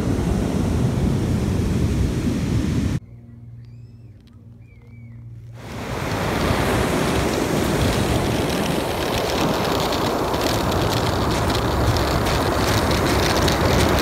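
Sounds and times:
ocean surf breaking: 0.0 - 3.0, 5.6 - 14.0
wind buffeting microphone: 0.0 - 3.0, 5.6 - 14.0.

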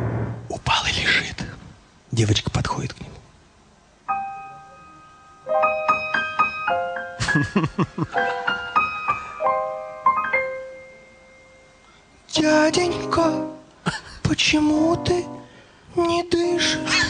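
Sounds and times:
short loud noisy sound: 0.0 - 0.6
piano playing: 4.1 - 13.7, 14.6 - 15.6, 16.4 - 17.0.

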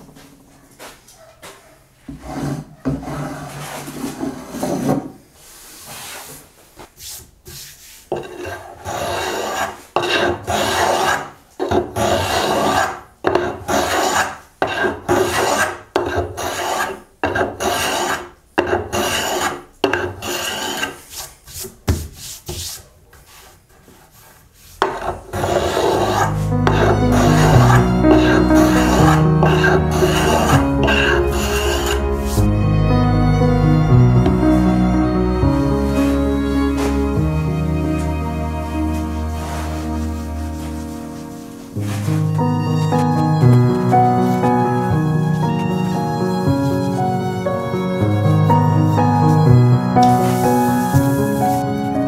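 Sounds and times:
hand tool rasping on wood: 8.2 - 21.6, 24.8 - 32.5.

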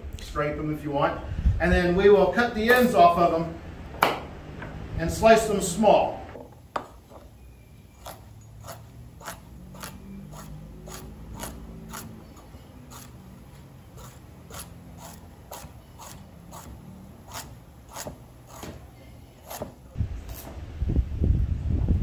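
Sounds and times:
knife chopping on wooden board: 8.0 - 13.2, 13.9 - 20.6.

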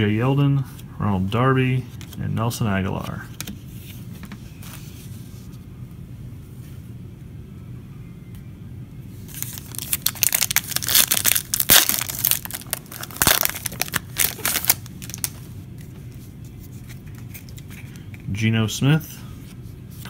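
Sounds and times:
low room hum: 0.0 - 20.0
foil pack crinkling and tearing: 9.3 - 15.4.

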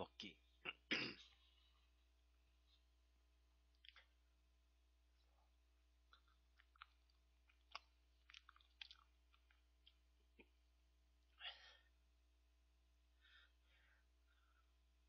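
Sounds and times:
mouth clicks and smacks eating: 3.7 - 4.2, 6.0 - 10.6.

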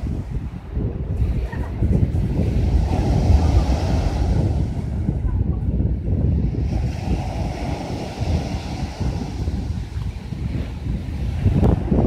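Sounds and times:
wind buffeting microphone: 0.0 - 12.0
waves breaking on pebble beach: 1.1 - 5.5, 6.3 - 12.0.

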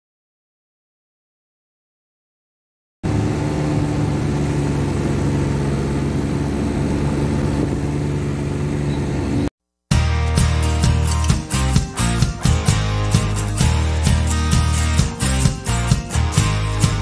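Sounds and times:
snowmobile engine running: 3.1 - 9.5, 10.9 - 17.0.

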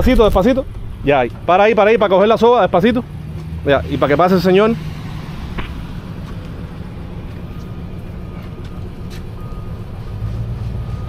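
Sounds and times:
vehicle engine rumbling: 0.0 - 11.0
reversing alarm beeping: 3.8 - 11.0.

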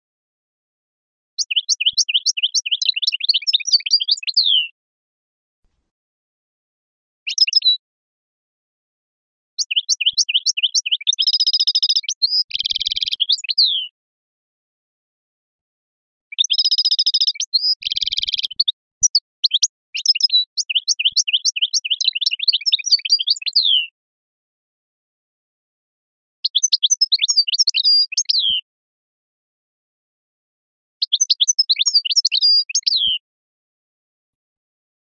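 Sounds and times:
finch singing twittering trills: 1.4 - 4.7, 7.3 - 7.8, 9.6 - 13.9, 16.3 - 23.9, 26.5 - 28.6, 31.0 - 33.2.

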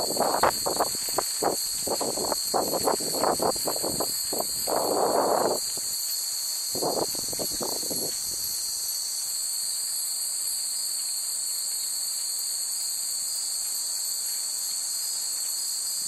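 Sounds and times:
high-pitched insect chorus: 0.0 - 16.0.

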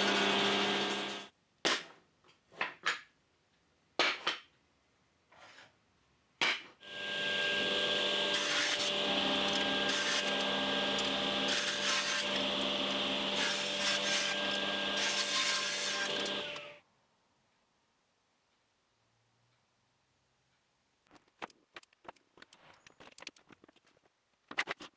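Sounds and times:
table saw cutting wood: 0.0 - 1.3, 6.8 - 16.8.

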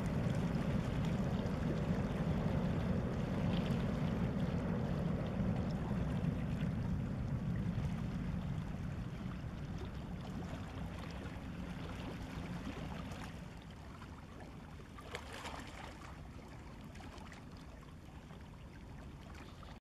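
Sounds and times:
ship engines rumbling: 0.0 - 14.1
faint water noise: 0.0 - 19.8.

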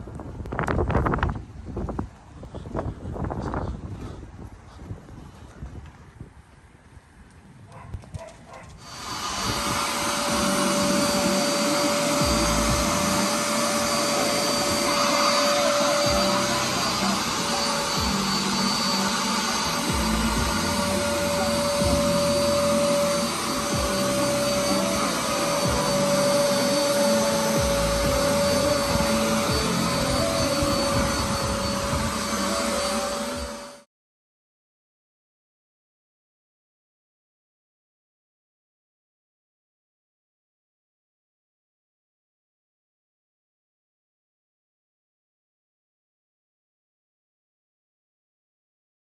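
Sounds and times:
nozzle drawn over carpet: 8.8 - 33.9
vacuum motor whine: 8.8 - 33.9.

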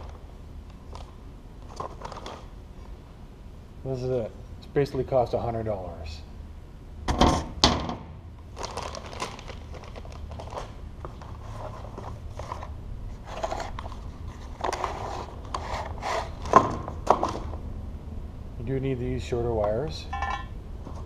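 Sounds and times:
cardboard and paper rustling: 0.8 - 2.5, 8.5 - 17.6
metal plate knocking down: 20.1 - 20.5.

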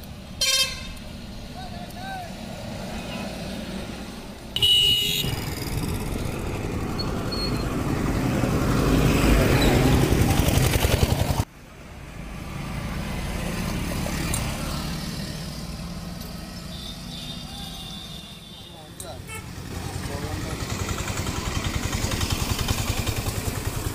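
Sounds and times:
vehicle passing: 1.0 - 18.0, 19.4 - 23.9
vehicle engine running close by: 5.2 - 11.5, 19.5 - 23.9.

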